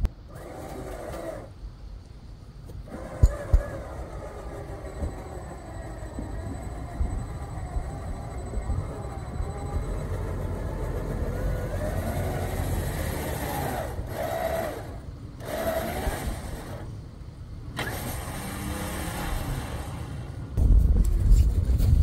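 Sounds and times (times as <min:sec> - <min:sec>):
suv engine revving: 0:07.8 - 0:16.9, 0:17.8 - 0:20.6.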